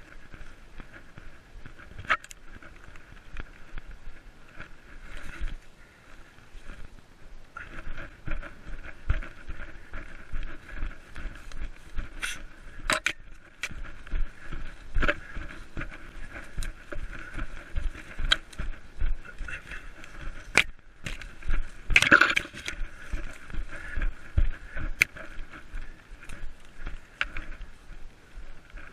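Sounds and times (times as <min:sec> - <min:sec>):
leaves and brush swishing: 0:00.0 - 0:28.9
running footsteps in undergrowth: 0:00.0 - 0:28.9
twigs snapping: 0:09.1 - 0:24.0, 0:24.6 - 0:27.8.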